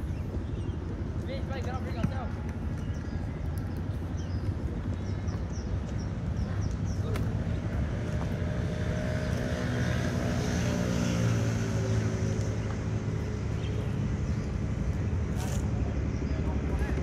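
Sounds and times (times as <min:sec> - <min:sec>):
passing engine hum: 0:00.0 - 0:17.0.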